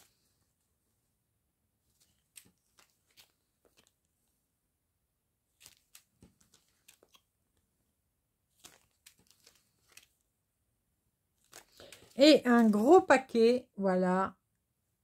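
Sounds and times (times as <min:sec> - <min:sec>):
plastic bags crinkling: 0:08.5 - 0:10.2, 0:11.4 - 0:12.8.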